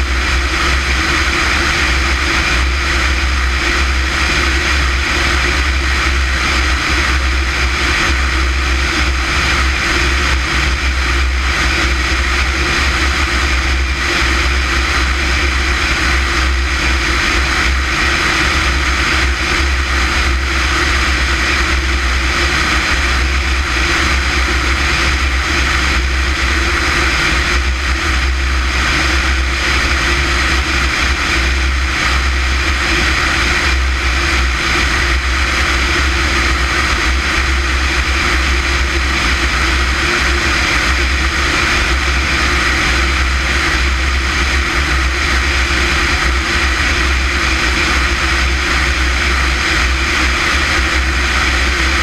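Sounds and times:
propeller airplane engine drone: 0:00.0 - 0:52.0
rushing air noise: 0:00.0 - 0:52.0.

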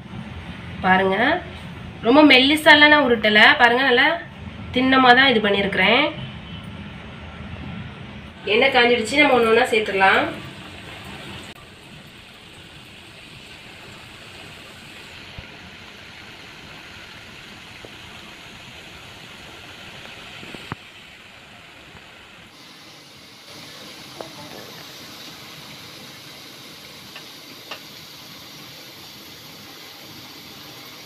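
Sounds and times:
dough sizzling in hot oil: 0:08.5 - 0:31.0.

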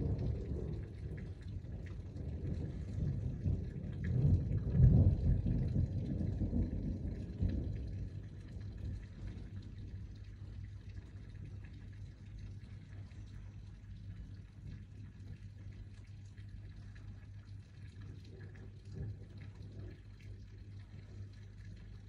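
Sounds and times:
thunder rumbling: 0:00.0 - 0:16.0
rain pattering: 0:00.0 - 0:22.0.

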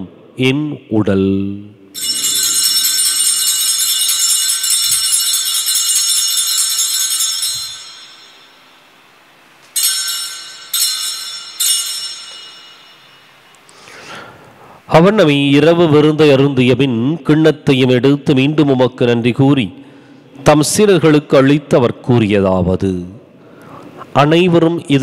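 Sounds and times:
altar bells ringing: 0:01.9 - 0:14.5.

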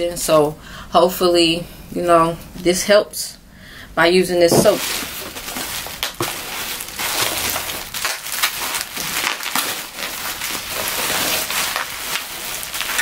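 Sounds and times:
bubble wrap crinkling: 0:04.4 - 0:13.0.

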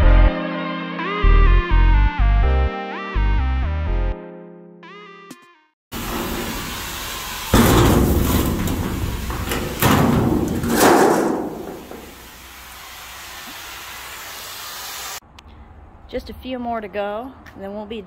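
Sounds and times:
steady hiss: 0:06.0 - 0:15.2
metal sheet crashing on concrete: 0:07.5 - 0:12.6
steel panel tearing with bangs: 0:07.6 - 0:12.4.

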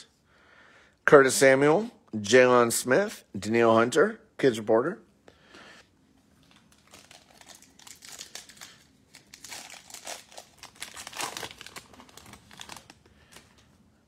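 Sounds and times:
foil wrapper crinkling: 0:06.4 - 0:13.7.

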